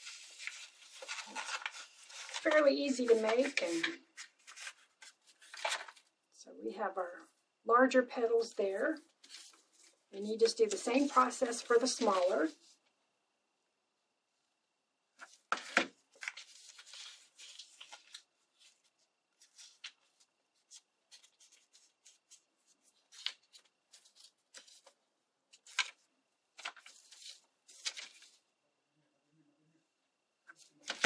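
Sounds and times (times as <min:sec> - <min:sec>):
paper rustling and crinkling: 0:00.0 - 0:06.1, 0:08.7 - 0:12.8, 0:15.2 - 0:28.4, 0:30.4 - 0:31.0.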